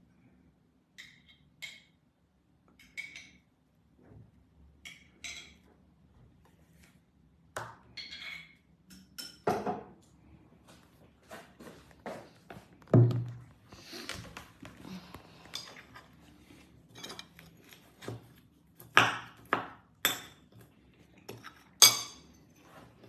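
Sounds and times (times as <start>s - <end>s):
crockery and cutlery clinking: 21.3s - 22.5s.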